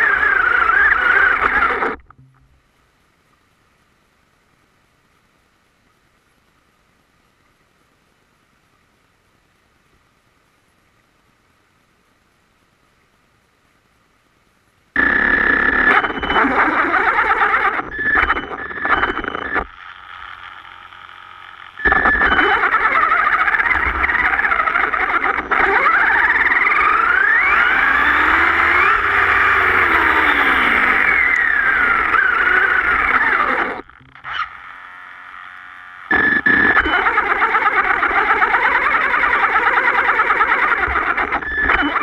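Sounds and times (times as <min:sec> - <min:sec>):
electric motor and gears whining: 0:00.0 - 0:02.3, 0:15.0 - 0:42.0.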